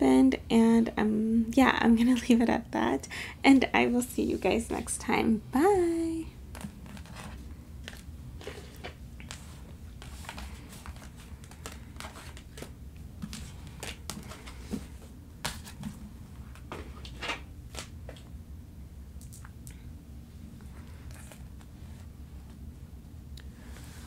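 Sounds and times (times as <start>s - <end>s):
low steady hum: 0.0s - 24.0s
cards clicking and rustling: 6.6s - 15.9s.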